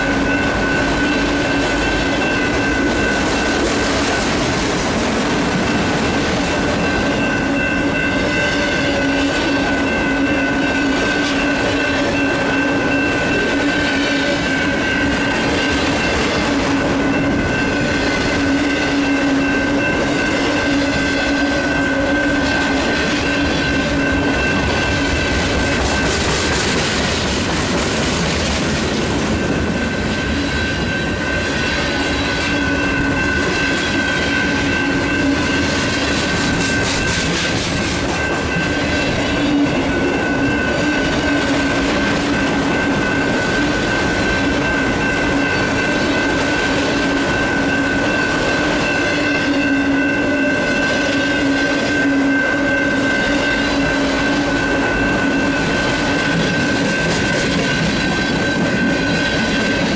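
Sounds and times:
electronic crossing bell: 0.0 - 4.4, 5.4 - 26.8, 29.2 - 59.9
train wheels clattering over rails: 0.0 - 52.4, 53.0 - 59.9.

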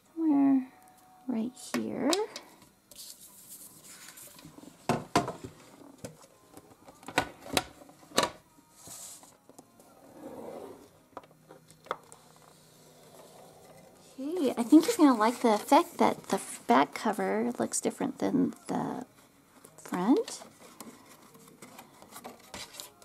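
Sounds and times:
paper rubbing and rustling: 2.9 - 4.8, 20.4 - 23.0.

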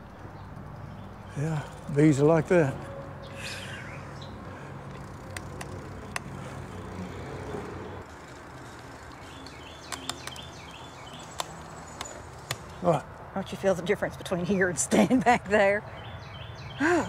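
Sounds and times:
sharp clicks: 4.9 - 6.4, 8.6 - 12.8.

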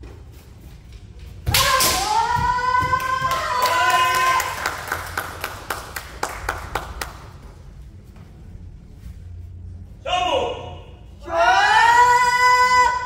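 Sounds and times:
scattered clapping: 3.2 - 7.4.

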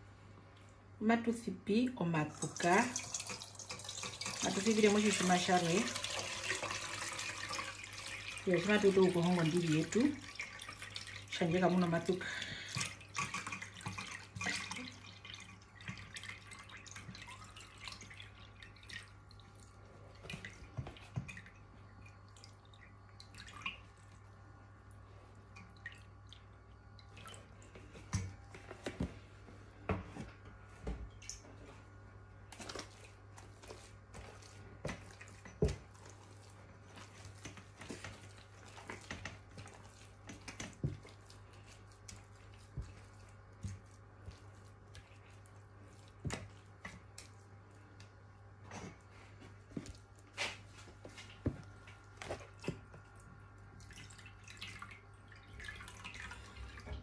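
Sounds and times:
buttermilk pouring through sieve: 2.2 - 21.4.

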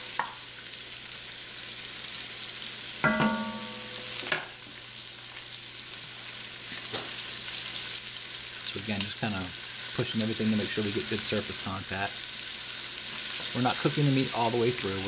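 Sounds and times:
meat sizzling in a pot: 0.0 - 15.0
ringing knock: 3.0 - 4.1.

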